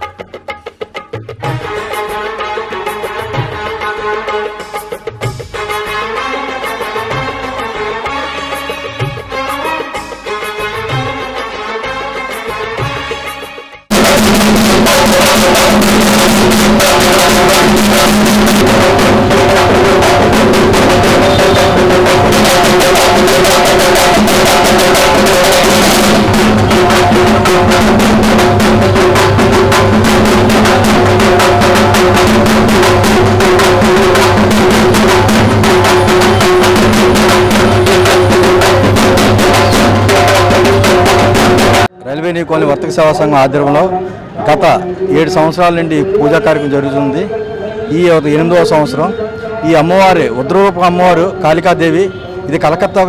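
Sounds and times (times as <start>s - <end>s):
held melodic notes: 0.0s - 53.0s
fast continuous drumming: 13.8s - 41.9s.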